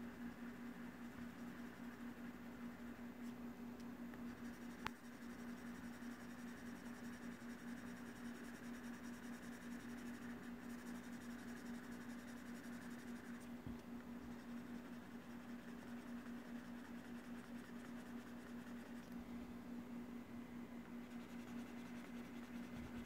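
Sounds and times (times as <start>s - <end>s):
steady low hum: 0.0s - 23.0s
stylus strokes on glass screen: 4.3s - 13.6s, 14.2s - 19.2s, 20.9s - 23.0s.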